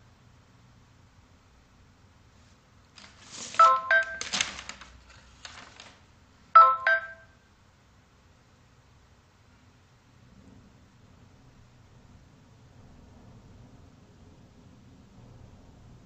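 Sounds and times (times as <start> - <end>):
two-note phone ringtone chime: 3.6 - 4.2, 6.6 - 7.4.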